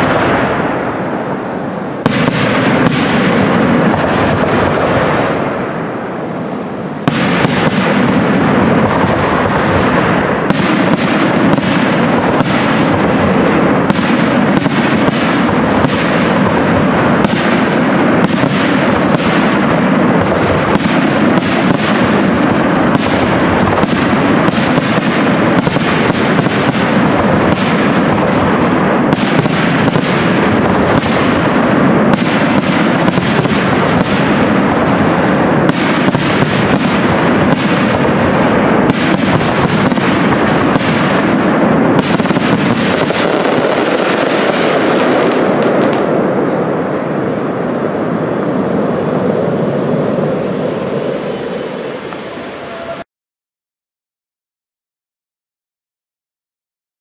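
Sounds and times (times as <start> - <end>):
firework shells bursting: 1.8 - 5.7, 7.0 - 46.3.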